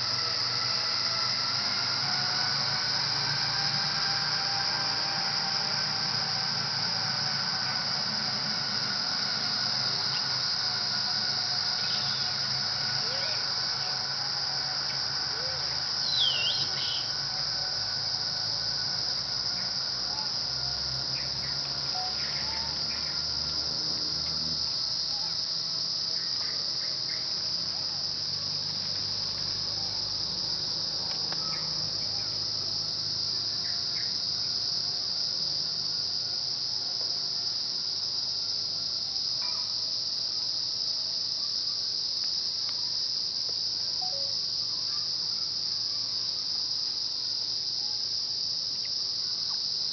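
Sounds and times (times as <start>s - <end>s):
insect chorus droning: 0.0s - 49.9s
sharp chirps: 16.0s - 17.2s.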